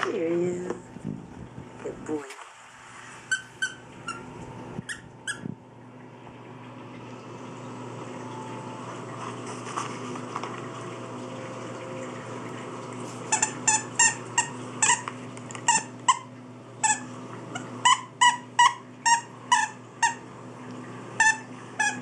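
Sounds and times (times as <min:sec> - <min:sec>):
squeaky dog toy squeaking: 0:03.3 - 0:05.5, 0:13.3 - 0:15.0, 0:15.7 - 0:20.2, 0:21.2 - 0:22.0.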